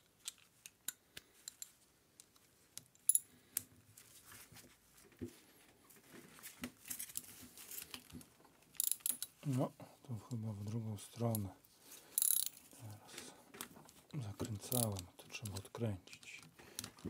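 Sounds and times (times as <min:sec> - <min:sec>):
ratchet wrench clicking: 0:08.8 - 0:09.3, 0:12.2 - 0:12.5
metallic clicks of wrenches: 0:08.8 - 0:09.4, 0:12.2 - 0:12.6, 0:14.4 - 0:17.0.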